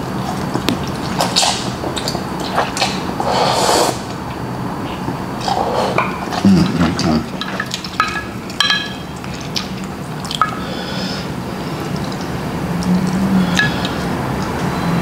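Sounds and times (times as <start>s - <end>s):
chopsticks stirring wet noodles: 4.8s - 10.7s
chopsticks tapping glass: 8.0s - 9.0s.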